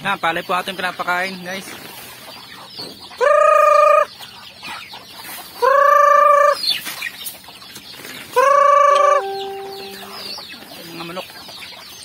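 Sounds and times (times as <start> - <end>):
chickens clucking: 0.0 - 12.0
chicken loud steady call: 3.2 - 4.1, 5.6 - 6.6, 8.4 - 10.4.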